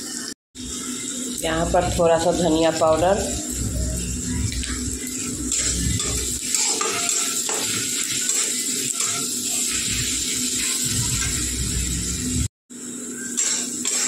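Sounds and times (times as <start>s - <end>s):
spatula scraping vegetables in pan: 3.5s - 12.2s.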